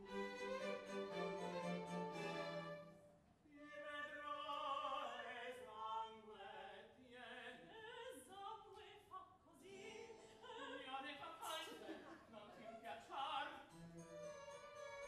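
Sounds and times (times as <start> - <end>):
harpsichord and strings phrase: 0.0 - 3.2
opera singers singing with vibrato: 3.5 - 15.0.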